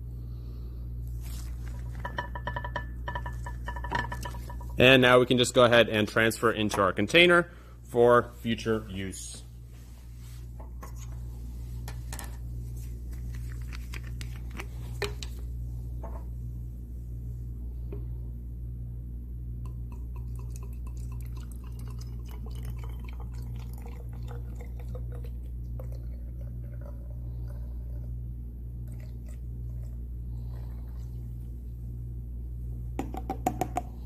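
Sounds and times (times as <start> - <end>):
low room hum: 0.0 - 34.0
liquid pouring into plastic bottle: 20.0 - 28.0.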